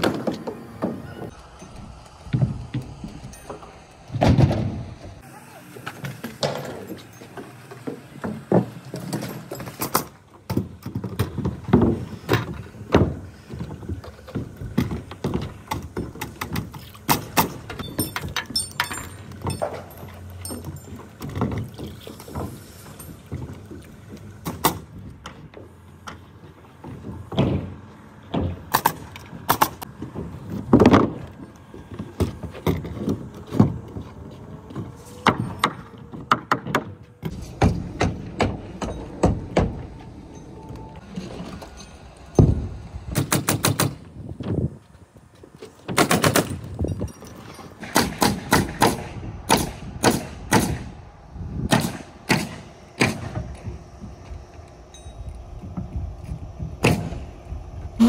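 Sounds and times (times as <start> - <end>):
nail gun firing into wood: 43.2 - 44.0, 45.9 - 46.6, 47.8 - 50.9, 51.7 - 53.5, 56.8 - 57.2.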